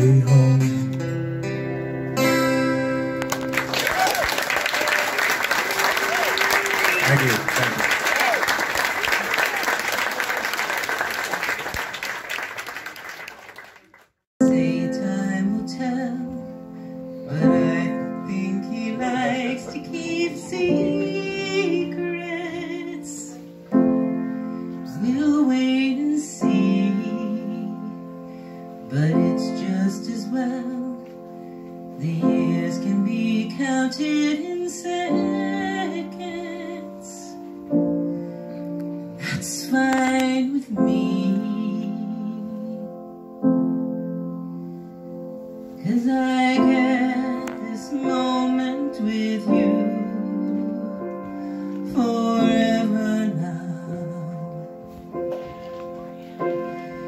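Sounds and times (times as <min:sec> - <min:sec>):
audience applause: 0:03.2 - 0:14.2
woman singing a slow ballad: 0:14.4 - 0:23.6, 0:24.6 - 0:28.2, 0:28.8 - 0:37.7, 0:39.0 - 0:43.1, 0:45.8 - 0:54.9
grand piano chords: 0:14.4 - 0:57.0.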